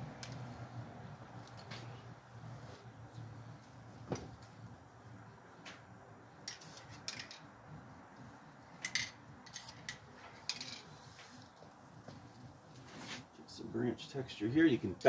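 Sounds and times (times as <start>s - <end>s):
spray can hissing: 6.5s - 7.0s.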